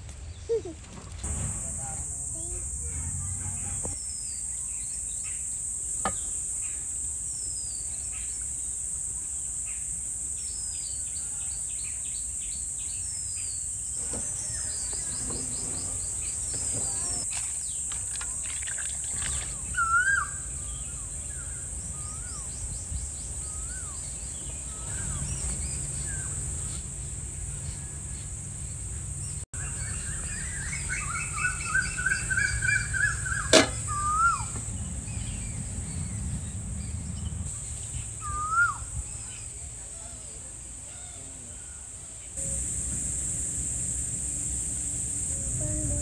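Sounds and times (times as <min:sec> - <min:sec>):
sharp click: 0:33.6 - 0:33.9
steady high hiss: 0:41.7 - 0:46.0.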